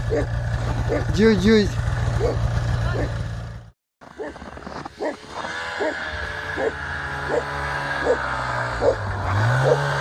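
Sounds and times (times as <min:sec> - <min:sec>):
snowmobile engine running: 0:00.0 - 0:10.0
dog barking: 0:00.1 - 0:00.3, 0:00.9 - 0:01.1, 0:02.2 - 0:03.2, 0:05.8 - 0:06.0, 0:06.6 - 0:08.2, 0:08.8 - 0:09.0.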